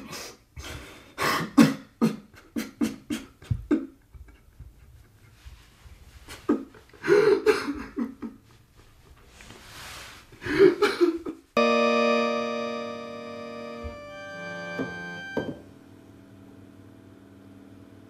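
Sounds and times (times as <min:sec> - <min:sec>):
electronic organ chord: 0:11.6 - 0:16.1.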